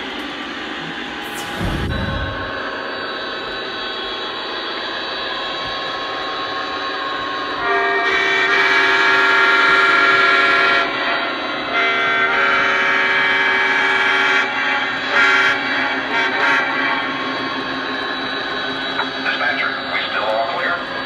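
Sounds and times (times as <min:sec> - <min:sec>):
model locomotive diesel engine sound: 0:00.0 - 0:21.0
air horn blowing: 0:07.6 - 0:11.0, 0:11.7 - 0:17.1.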